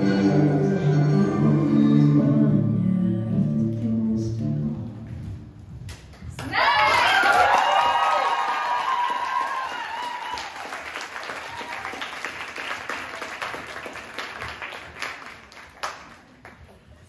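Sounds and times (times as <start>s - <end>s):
audience applauding: 6.4s - 16.6s
person cheering: 6.5s - 10.6s.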